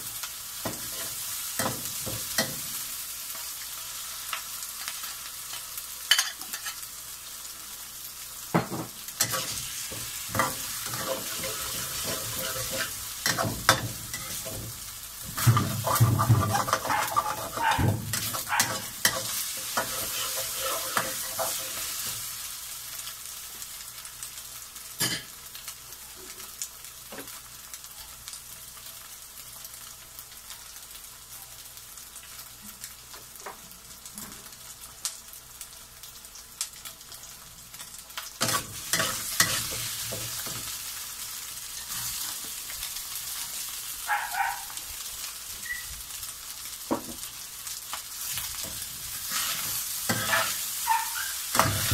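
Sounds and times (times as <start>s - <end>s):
food sizzling in hot oil: 0.0s - 51.9s
metal spatula scraping a pan: 9.2s - 14.6s, 15.4s - 22.0s, 38.4s - 40.4s, 49.2s - 51.9s.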